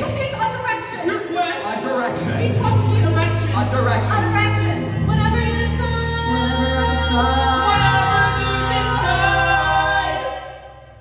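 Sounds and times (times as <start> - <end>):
bass and keyboard accompaniment: 0.0 - 11.0
young voices singing together: 5.1 - 11.0.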